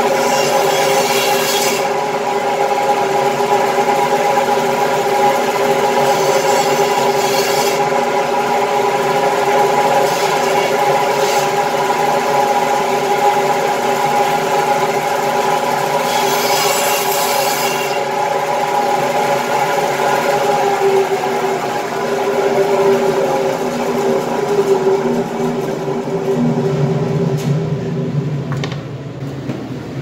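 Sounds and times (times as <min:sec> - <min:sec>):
band saw humming: 0:15.6 - 0:28.0.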